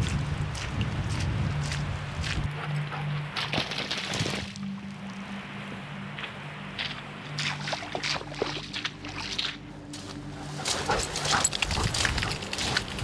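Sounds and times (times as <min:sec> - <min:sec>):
footsteps on wet grass: 0:00.0 - 0:13.0
low steady drone: 0:04.4 - 0:13.0.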